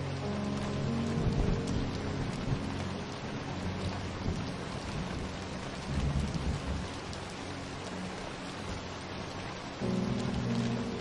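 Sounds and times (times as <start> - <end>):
steady rain falling: 0.0 - 11.0
thunder rumbling: 0.2 - 7.2, 9.8 - 11.0.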